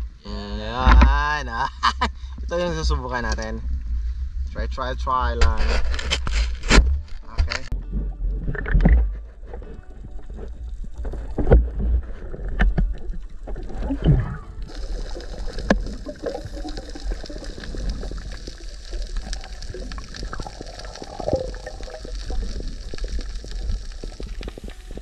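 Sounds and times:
low rumbling water movement: 7.0s - 25.0s
water splashing: 12.9s - 25.0s.

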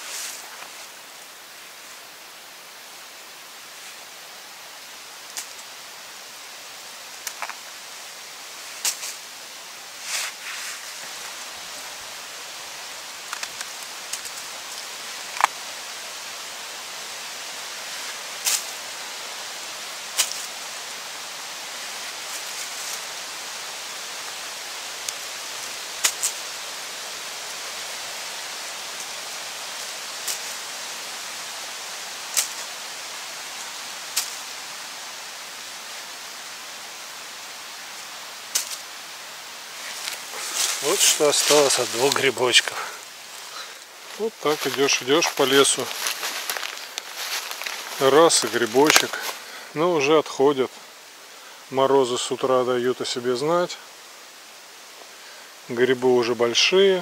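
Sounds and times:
steady hiss: 0.0s - 57.0s.

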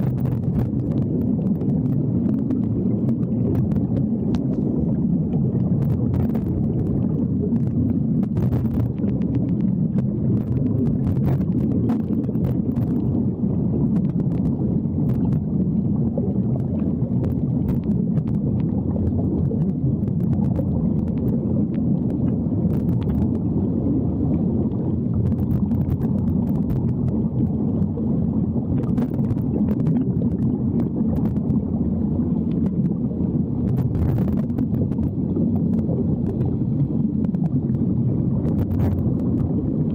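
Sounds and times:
faint clicks and crackles: 0.0s - 39.9s
muffled underwater rumble: 0.0s - 39.9s.

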